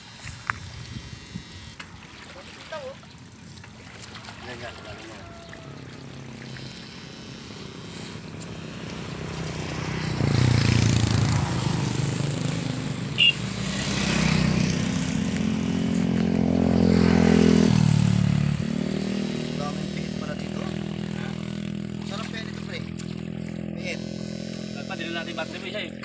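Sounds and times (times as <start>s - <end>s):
small engine running: 0.0s - 26.0s
brief high tone: 13.2s - 13.4s.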